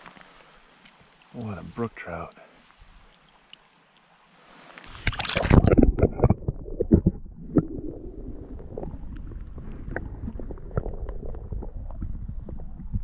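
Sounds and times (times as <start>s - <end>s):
underwater clicks and knocks: 5.0s - 8.0s
muffled underwater water gurgling: 5.0s - 13.0s.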